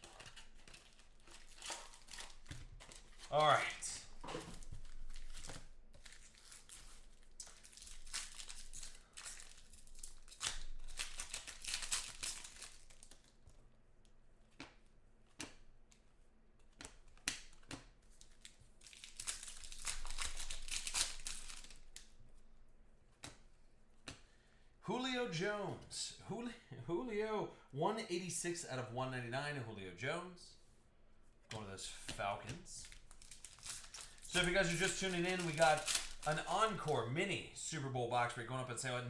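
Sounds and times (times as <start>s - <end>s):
card pack wrappers crinkling and tearing: 0.0s - 13.4s, 17.1s - 22.2s, 32.7s - 37.1s.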